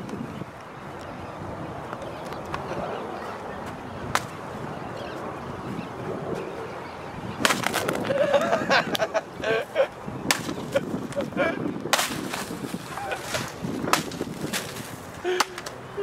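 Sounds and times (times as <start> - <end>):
stick whacking a pinata: 7.4 - 8.0, 10.3 - 10.8, 11.9 - 15.8.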